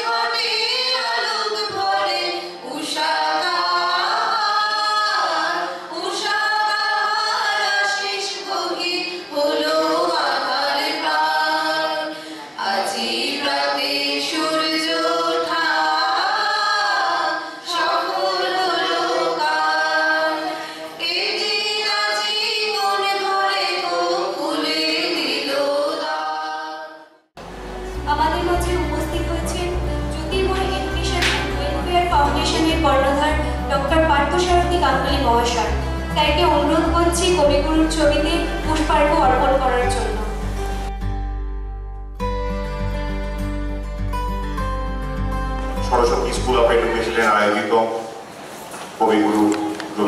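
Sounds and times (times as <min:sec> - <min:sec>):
group of women and men singing: 0:00.0 - 0:27.2, 0:30.3 - 0:33.7.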